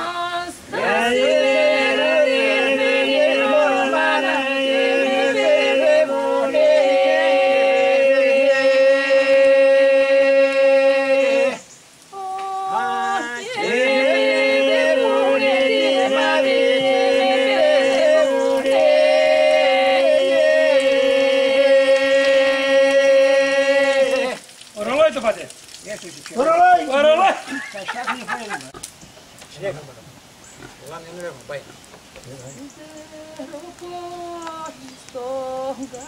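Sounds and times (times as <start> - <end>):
man singing ornamented melody: 0.0 - 24.4.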